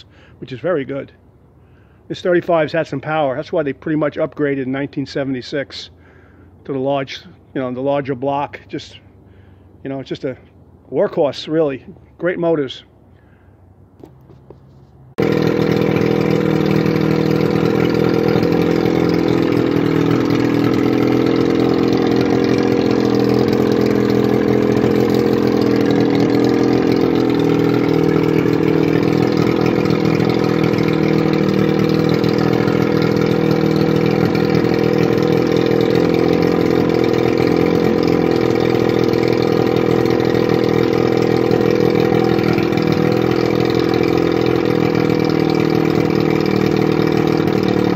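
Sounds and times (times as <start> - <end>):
outboard motor running: 0.0 - 4.8, 5.5 - 9.8, 14.6 - 47.9.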